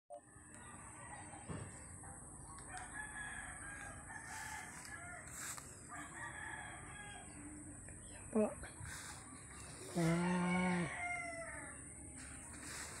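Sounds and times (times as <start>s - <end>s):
rooster crowing: 2.7s - 7.5s, 9.8s - 12.0s.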